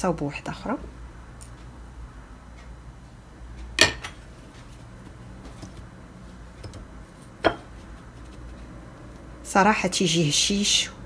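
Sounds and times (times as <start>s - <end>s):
low room hum: 0.0s - 11.0s
hard knock against dishware: 3.8s - 4.2s, 7.5s - 7.7s.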